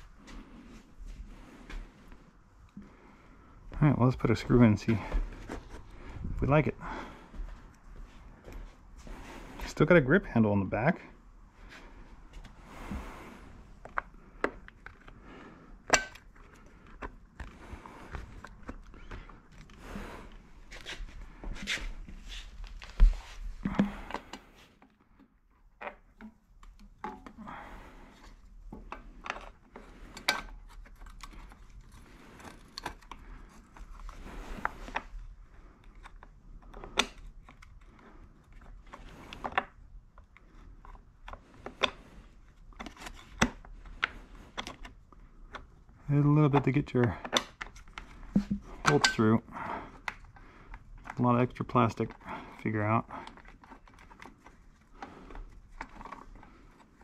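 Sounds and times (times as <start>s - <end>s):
plastic parts clicking and rattling: 28.2s - 57.0s.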